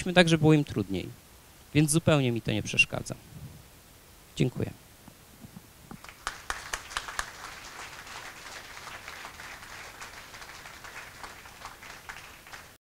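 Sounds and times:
audience applauding: 0:06.0 - 0:12.8.

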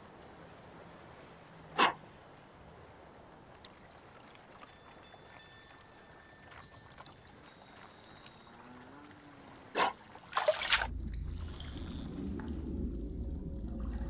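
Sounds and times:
water splashing: 0:00.0 - 0:14.0
muffled underwater rumble: 0:10.9 - 0:14.0.

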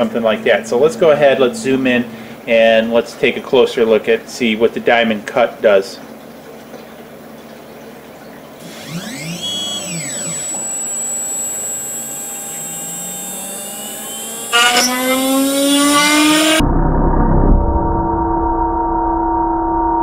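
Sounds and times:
router cutter whine: 0:08.6 - 0:16.6.

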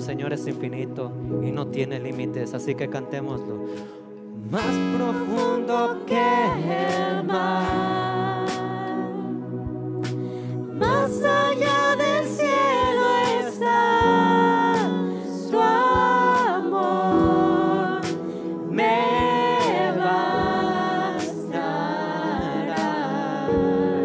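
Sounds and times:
sustained accompaniment chords: 0:00.0 - 0:24.0
voices singing held notes: 0:04.5 - 0:09.4, 0:10.8 - 0:24.0.

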